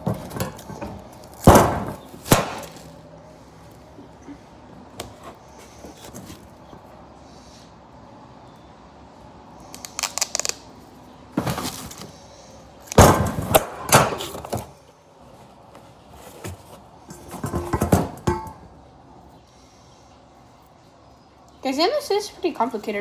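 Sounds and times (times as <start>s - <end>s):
duct tape pulled and torn: 9.6s - 10.8s
knock and handling noise: 16.2s - 18.6s.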